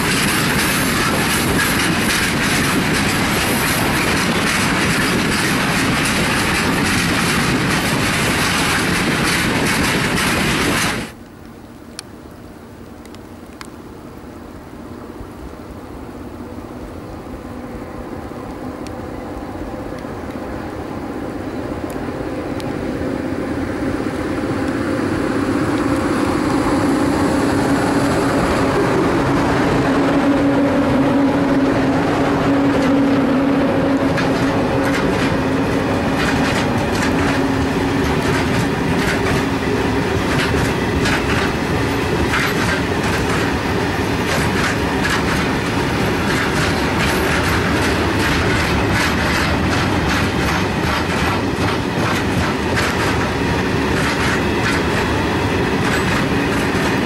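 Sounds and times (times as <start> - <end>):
wagon wheels clacking over rail joints: 0.0 - 11.2, 33.8 - 57.0
electric locomotive hum: 0.0 - 57.0.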